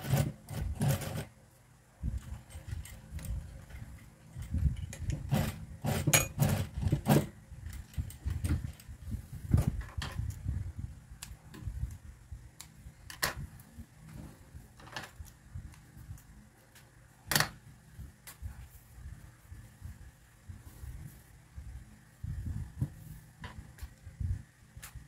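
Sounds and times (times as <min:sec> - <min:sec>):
sewing machine stitching: 0:00.0 - 0:01.3, 0:05.1 - 0:07.3
clicks and rattles of handling: 0:02.1 - 0:09.0, 0:12.6 - 0:17.6.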